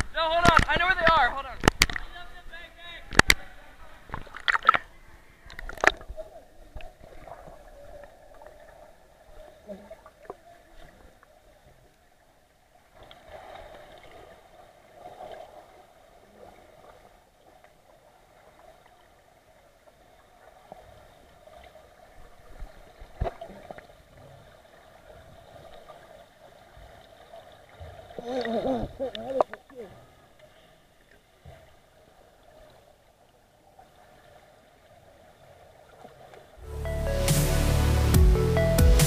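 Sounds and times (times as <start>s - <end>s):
sharp knocks underwater: 0.0s - 2.2s, 3.1s - 3.5s, 4.1s - 4.9s, 5.5s - 7.6s, 22.6s - 23.6s.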